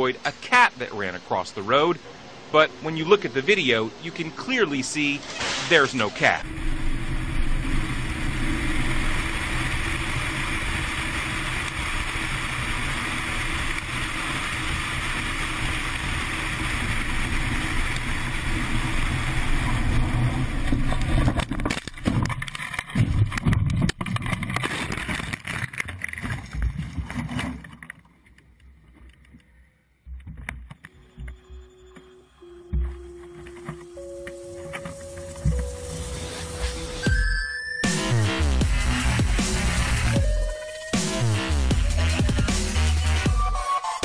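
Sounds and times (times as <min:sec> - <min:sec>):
vehicle road and wind noise: 0:02.1 - 0:25.8
vehicle crash knocks and jolts: 0:19.5 - 0:26.5.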